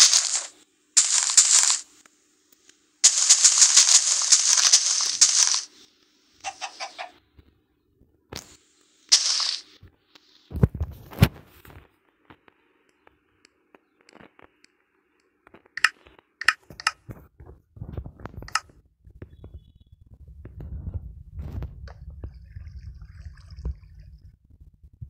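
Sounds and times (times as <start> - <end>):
short hiss: 0.0 - 2.0, 3.0 - 5.8, 8.5 - 9.8
faint steady hum: 0.0 - 25.0
sharp clicks and taps: 13.0 - 17.0.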